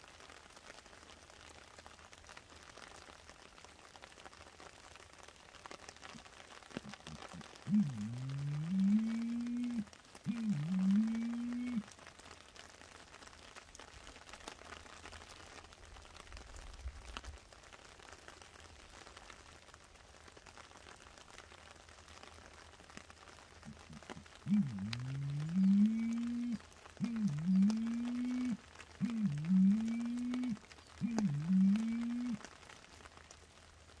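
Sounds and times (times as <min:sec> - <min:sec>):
light rain on leaf litter: 0:00.0 - 0:34.0
loud low humming call: 0:07.1 - 0:11.8, 0:23.7 - 0:32.4.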